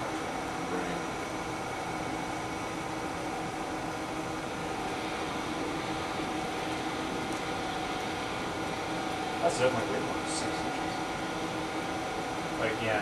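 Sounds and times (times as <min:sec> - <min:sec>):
room hum and hiss: 0:00.0 - 0:13.0.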